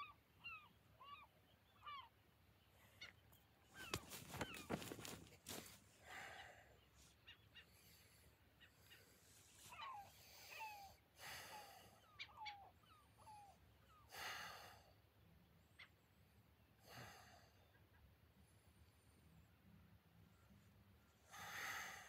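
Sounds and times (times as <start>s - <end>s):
birds chirping: 0.0s - 10.9s, 11.5s - 14.1s
slow breathing: 5.5s - 7.0s, 21.2s - 22.0s.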